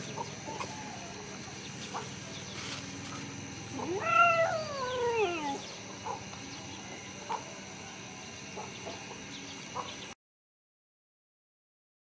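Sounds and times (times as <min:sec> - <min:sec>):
rooster crowing: 0:00.6 - 0:01.4, 0:03.8 - 0:05.6.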